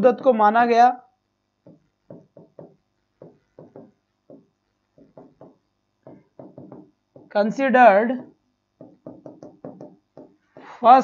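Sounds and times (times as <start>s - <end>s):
chalk tapping on blackboard: 1.6s - 7.4s, 8.2s - 10.8s.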